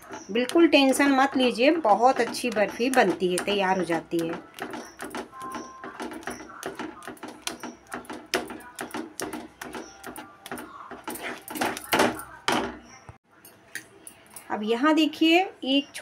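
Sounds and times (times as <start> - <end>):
wooden spatula scraping and squishing: 0.0 - 11.9.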